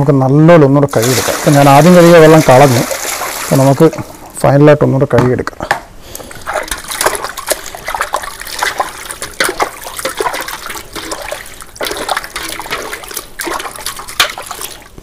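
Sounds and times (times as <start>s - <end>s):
water splashing in a metal basin: 0.9s - 4.3s, 6.4s - 15.0s.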